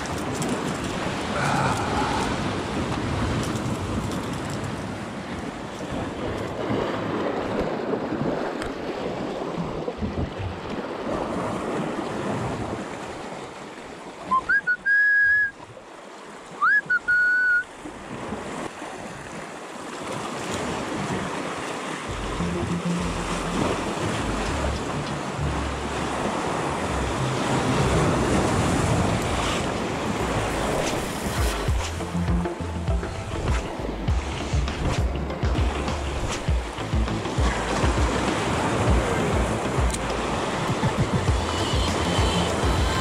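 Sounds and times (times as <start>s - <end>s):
sea waves washing on shore: 0.0s - 43.0s
loud short whistles: 14.3s - 15.6s, 16.6s - 17.7s.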